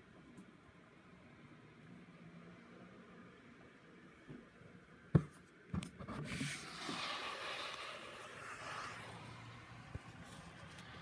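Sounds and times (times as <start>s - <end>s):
hiss of falling hail: 6.6s - 10.1s.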